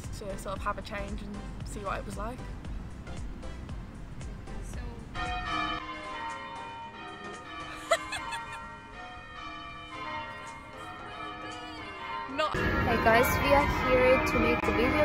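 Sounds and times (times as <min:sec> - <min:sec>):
ringing bell-like music: 0:05.1 - 0:15.0.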